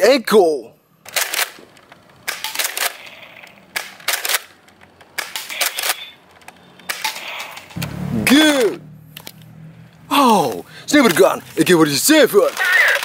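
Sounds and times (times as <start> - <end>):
sharp plastic clacks and pops: 1.1 - 7.9.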